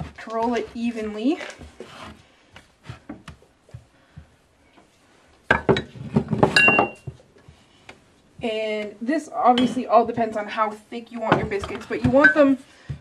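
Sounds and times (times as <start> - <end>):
kitchenware clattering: 5.5 - 7.2, 11.3 - 12.6.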